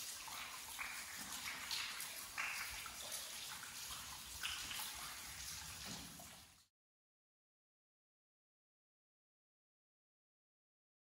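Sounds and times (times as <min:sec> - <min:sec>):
water trickling and splashing: 0:00.0 - 0:06.7.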